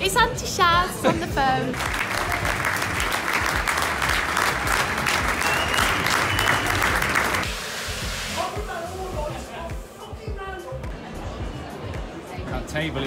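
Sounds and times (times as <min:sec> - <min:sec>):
crowd clapping: 0:01.7 - 0:07.5.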